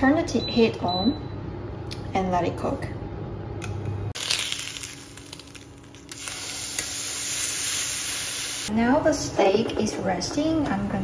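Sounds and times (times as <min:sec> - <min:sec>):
steak sizzling in a frying pan: 0:04.2 - 0:08.7.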